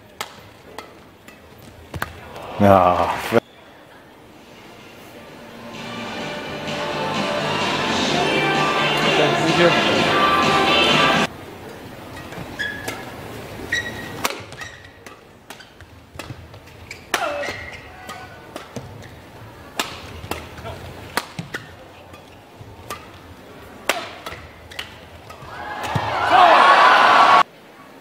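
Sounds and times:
court shoes squeaking: 0:00.0 - 0:03.8, 0:10.0 - 0:26.6
racket hitting shuttlecock: 0:00.1 - 0:02.5, 0:13.7 - 0:26.6.

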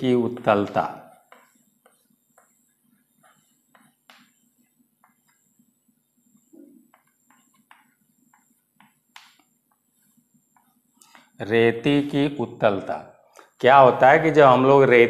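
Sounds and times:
chalk tapping and scraping: 0:00.0 - 0:11.4.

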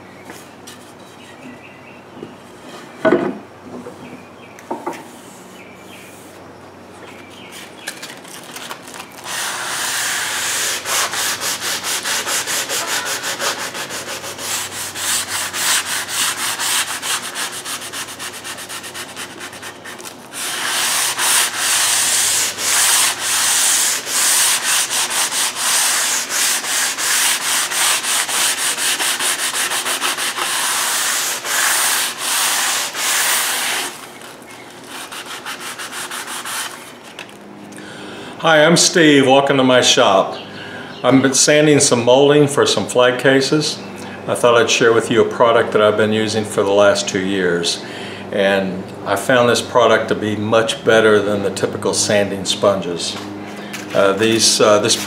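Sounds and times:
sanding sponge scraping wood: 0:09.2 - 0:34.1, 0:34.8 - 0:36.9, 0:53.9 - 0:55.0.

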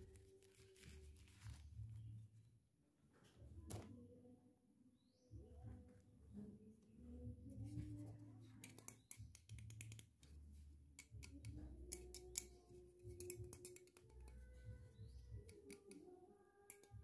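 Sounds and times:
fingers tapping plastic toys: 0:08.6 - 0:10.4, 0:11.0 - 0:16.1, 0:16.7 - 0:17.0.

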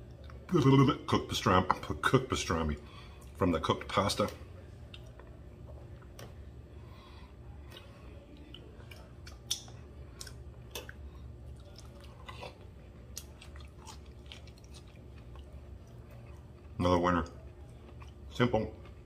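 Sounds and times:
person chewing crunchy food: 0:07.6 - 0:19.0.

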